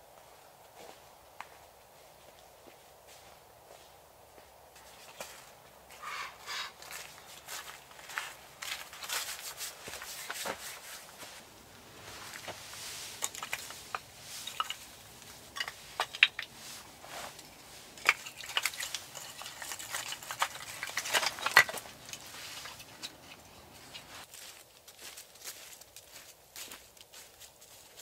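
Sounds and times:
firewood pieces knocking together: 12.4 - 24.1.

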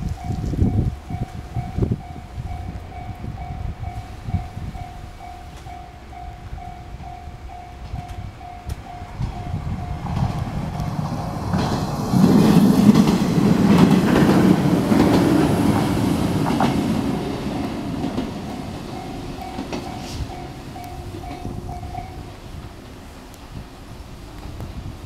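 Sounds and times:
electric train passing: 0.0 - 25.0
level crossing bell ringing: 0.2 - 10.1, 18.4 - 22.4.

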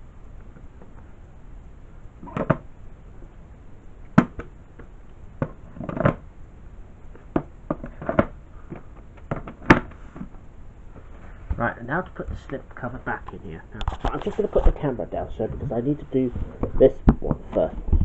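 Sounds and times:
tapes knocking and clacking: 2.2 - 2.6, 4.2 - 6.2.

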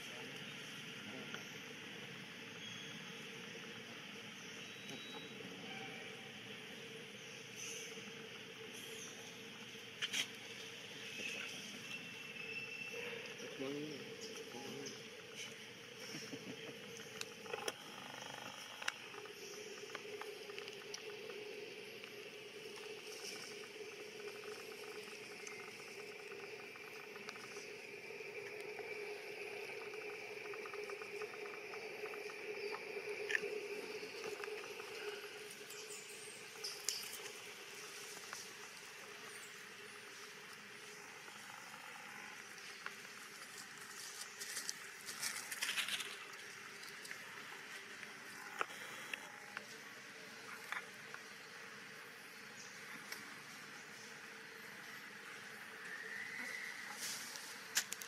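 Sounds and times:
steady background hum: 0.0 - 58.0
crackly rustling: 42.8 - 49.3.

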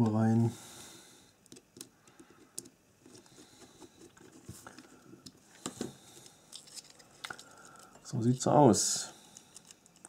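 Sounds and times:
tiny screw clicking and scratching: 6.5 - 8.0, 9.3 - 10.0.

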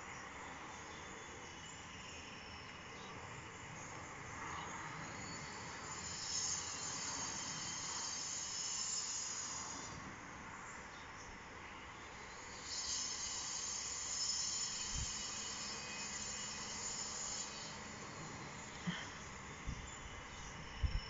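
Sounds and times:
steady background hiss: 0.0 - 21.0
circular saw whining: 4.8 - 10.4, 12.0 - 21.0.

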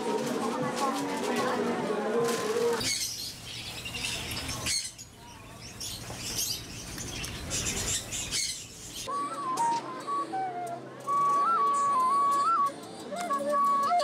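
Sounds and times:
small birds chirping: 2.8 - 9.1.

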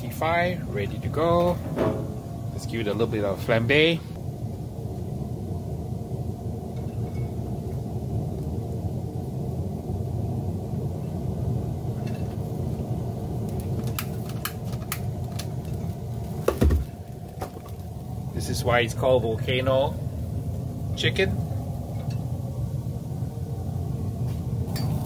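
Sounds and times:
pellet grill rumbling: 0.0 - 25.0
igniter clicks: 13.4 - 17.9.

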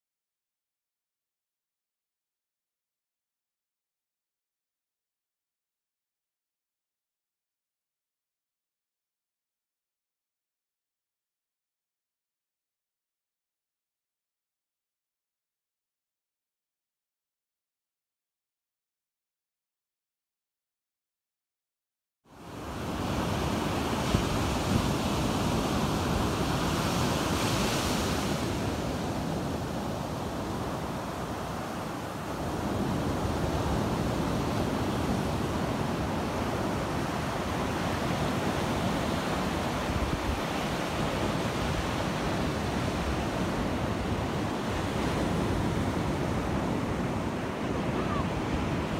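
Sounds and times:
ocean surf washing up beach: 22.4 - 48.9
wind on microphone: 22.6 - 48.9.

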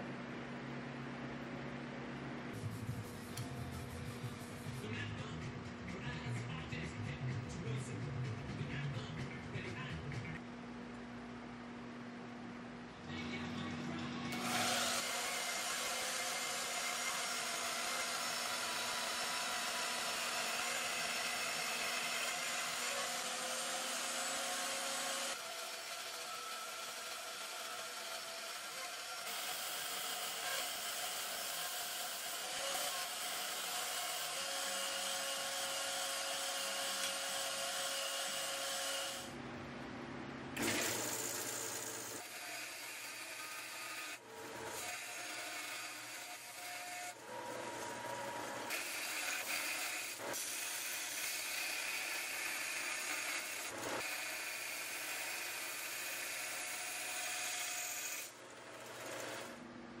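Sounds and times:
bandsaw cutting steel: 14.3 - 39.3, 40.6 - 59.6.

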